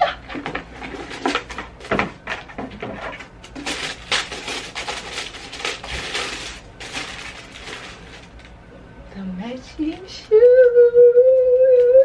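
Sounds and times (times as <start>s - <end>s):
tissue paper rustling: 3.0s - 8.5s.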